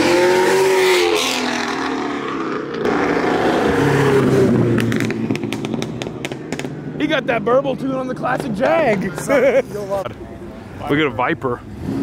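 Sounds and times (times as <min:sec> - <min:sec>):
car engine driving off: 0:00.0 - 0:09.4
exhaust pops crackling: 0:04.7 - 0:09.3.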